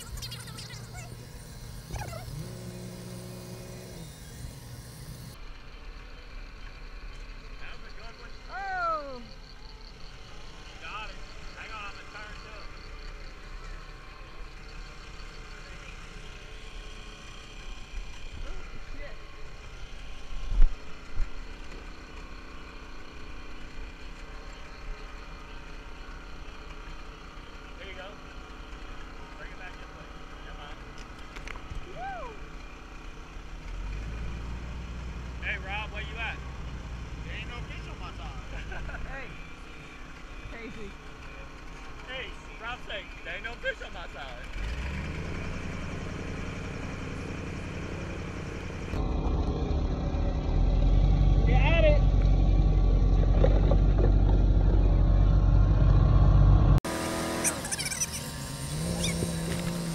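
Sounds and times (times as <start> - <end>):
boat engine running: 0.0 - 5.4, 52.0 - 59.9
engine idling: 0.0 - 33.5.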